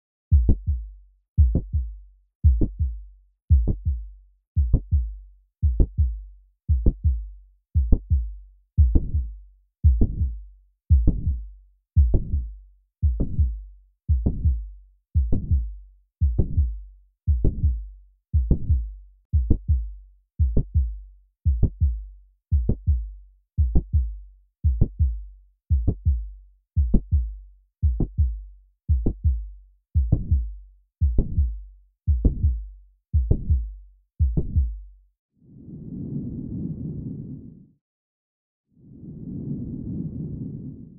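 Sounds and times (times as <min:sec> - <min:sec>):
heart murmur: 0:00.3 - 0:00.8, 0:01.4 - 0:04.0, 0:04.6 - 0:07.2, 0:20.4 - 0:20.9, 0:22.6 - 0:23.0, 0:23.6 - 0:24.1, 0:25.7 - 0:26.2, 0:30.0 - 0:32.6
heartbeat through stethoscope: 0:00.3 - 0:34.9
heart valve click: 0:03.5 - 0:04.0, 0:04.6 - 0:05.0, 0:32.1 - 0:32.6.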